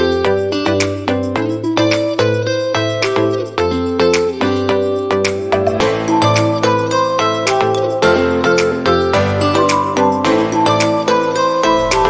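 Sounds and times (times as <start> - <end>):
light melody background music: 0.0 - 12.0
steady bass line: 5.3 - 12.0.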